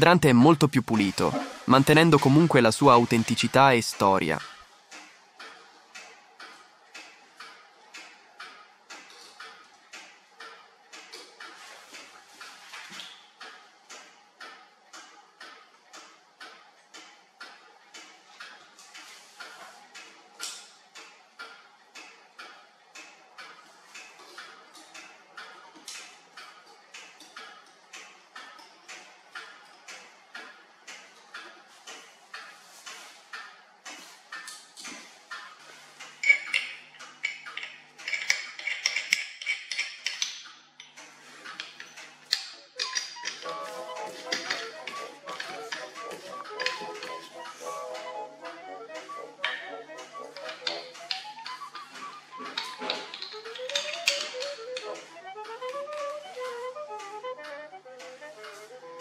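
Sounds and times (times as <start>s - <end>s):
small metal tools clicking: 36.2s - 41.0s, 41.6s - 47.4s, 49.4s - 56.2s.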